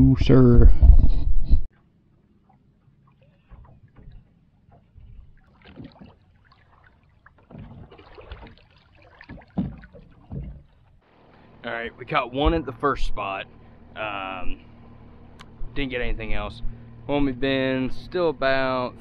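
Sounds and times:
water sounds: 1.7s - 19.0s
knocking on boat: 7.4s - 8.6s, 9.2s - 10.8s.

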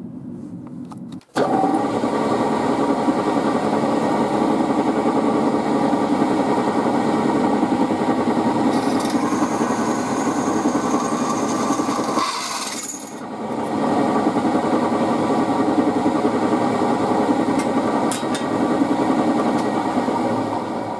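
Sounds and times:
drill press running: 1.3s - 20.9s
drill bit cutting into steel: 8.7s - 13.2s.

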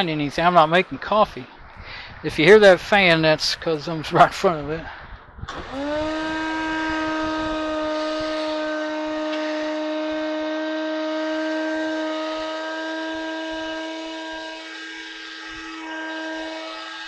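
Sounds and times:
coffee grinder motor whining: 5.5s - 17.0s.

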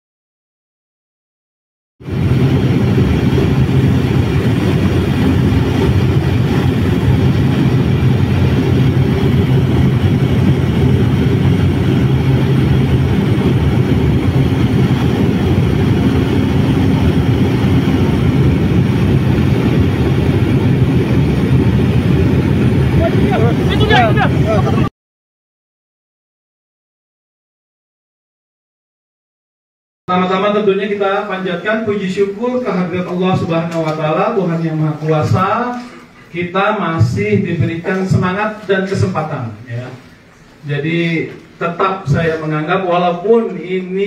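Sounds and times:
aircraft engine drone: 2.0s - 24.9s.

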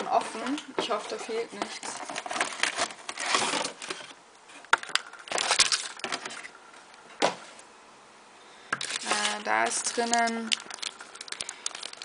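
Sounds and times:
plastic packaging crinkling: 0.0s - 6.7s, 8.7s - 12.0s.

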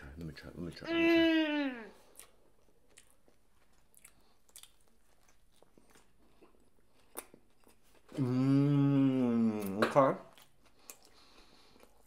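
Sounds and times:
chewing crunches and clicks: 2.1s - 7.8s.

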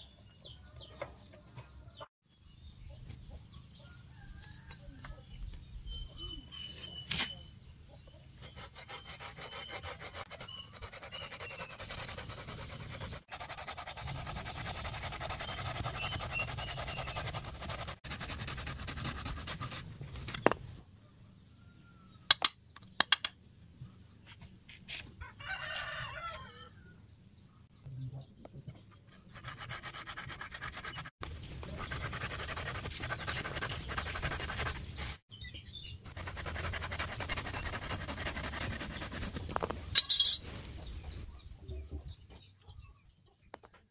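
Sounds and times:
saw rasping through branch: 8.4s - 19.8s, 36.1s - 39.4s.

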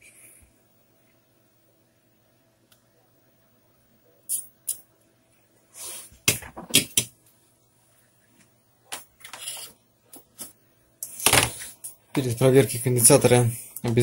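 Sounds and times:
faint steady hum: 0.0s - 14.0s
short scraping hisses: 5.7s - 6.2s.

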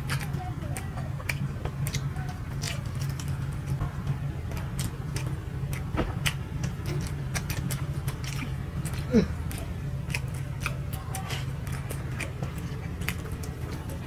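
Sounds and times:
mouth clicks and lip smacks: 0.0s - 3.8s
steady low hum: 0.0s - 14.0s.

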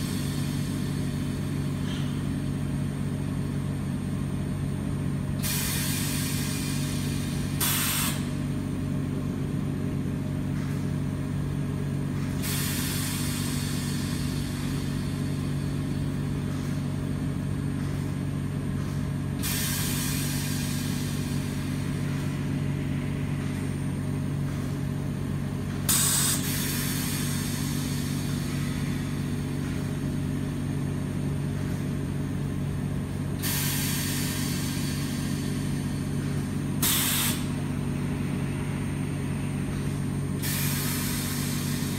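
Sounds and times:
machine low hum: 0.0s - 41.9s
hiss of escaping air: 5.4s - 8.4s, 12.3s - 15.8s, 19.4s - 23.8s, 25.9s - 29.5s, 33.4s - 39.2s, 39.9s - 41.9s.

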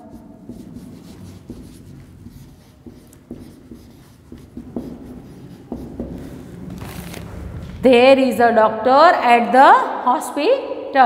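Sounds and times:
marker pen scratching on whiteboard: 0.0s - 7.4s.

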